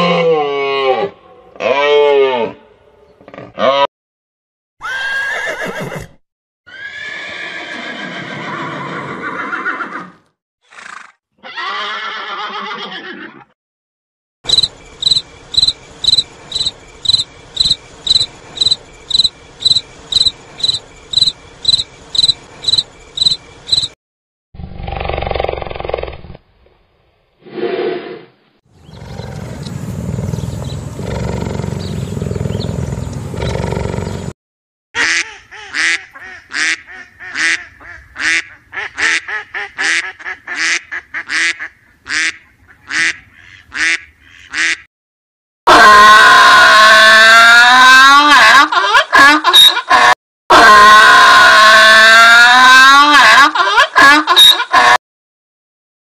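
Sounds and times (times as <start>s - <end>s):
horses neighing: 4.8s - 13.5s, 28.8s - 34.3s
cricket chirping: 14.5s - 24.0s.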